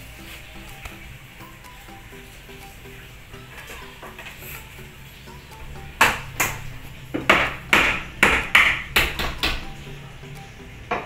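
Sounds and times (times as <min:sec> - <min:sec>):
faint background music: 0:00.0 - 0:11.0
hammer nailing wood: 0:06.0 - 0:09.7.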